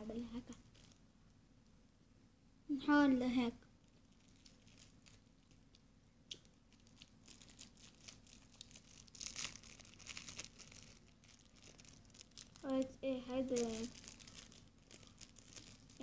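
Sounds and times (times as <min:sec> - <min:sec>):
packaging crinkling: 0:00.5 - 0:01.0, 0:03.8 - 0:16.0.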